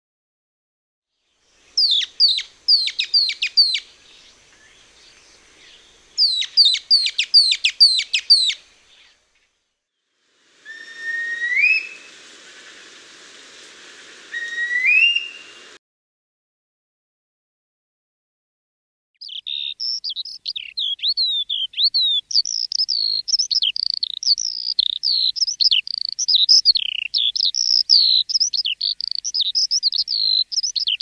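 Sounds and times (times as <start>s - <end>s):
light hiss: 1.3s - 15.8s
rising bird whistles: 1.8s - 3.8s, 6.2s - 8.6s, 10.6s - 12.3s, 14.3s - 15.8s.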